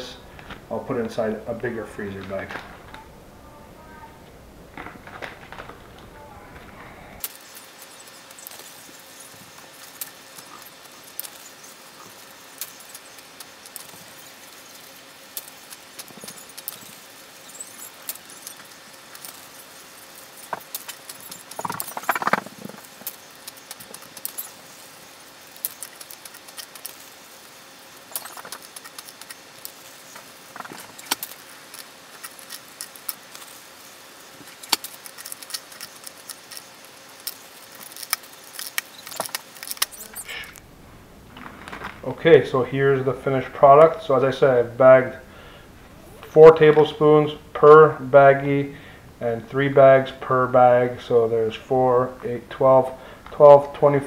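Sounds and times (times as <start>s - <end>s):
plastic bags crinkling: 4.7s - 40.6s.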